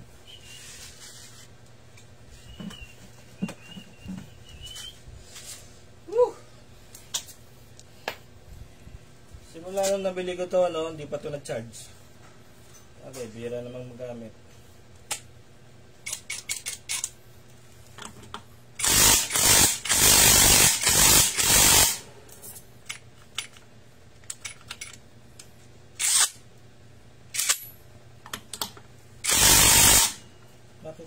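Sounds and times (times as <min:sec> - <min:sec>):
tools clicking when handled: 0:16.0 - 0:17.2, 0:22.4 - 0:26.3
impact wrench bursts: 0:18.8 - 0:22.1, 0:26.0 - 0:26.4, 0:29.2 - 0:30.3.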